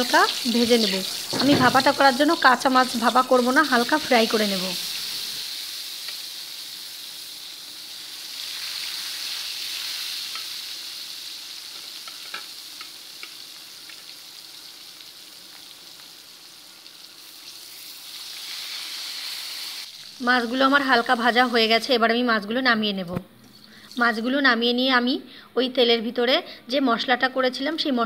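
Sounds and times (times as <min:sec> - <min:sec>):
fish sizzling in hot oil: 0:00.0 - 0:21.9.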